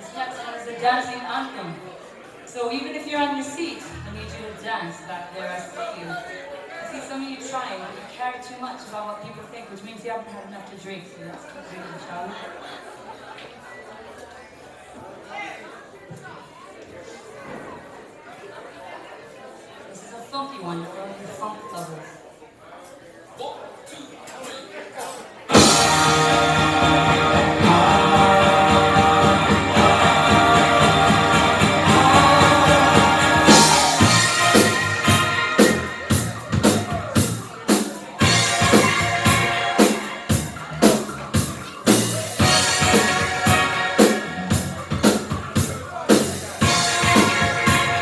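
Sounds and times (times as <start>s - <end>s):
rock band playing funk: 25.5s - 48.0s.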